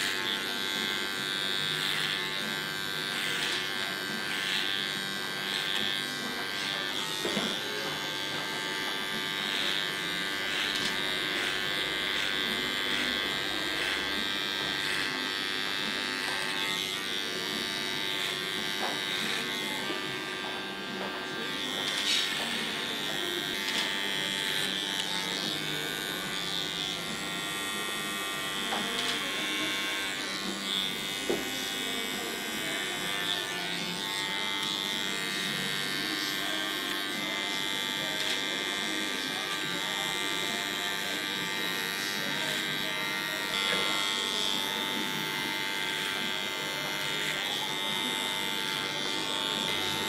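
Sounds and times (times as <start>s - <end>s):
electric hair clipper buzzing: 0.0s - 50.0s.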